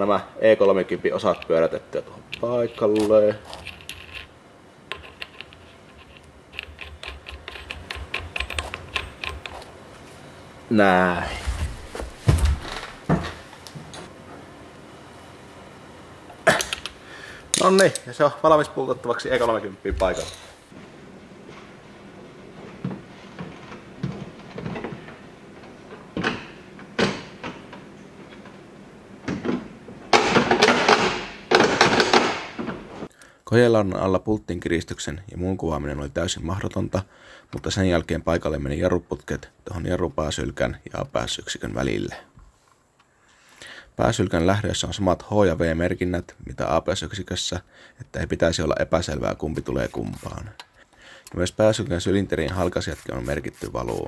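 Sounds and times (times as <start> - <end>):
metal nut clicking on thread: 4.9 - 9.6.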